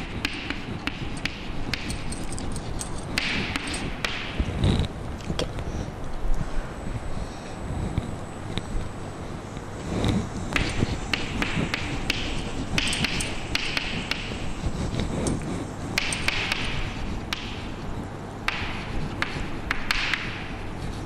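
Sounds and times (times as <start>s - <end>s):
chalk tapping on chalkboard: 0.0s - 2.4s, 10.6s - 17.7s, 18.5s - 20.6s.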